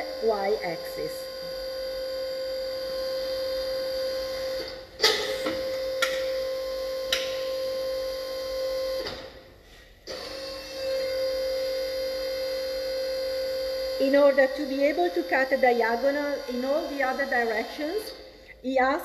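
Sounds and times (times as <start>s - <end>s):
saw electrical hum: 0.0s - 19.0s
hydraulic lock clunk: 4.6s - 6.3s.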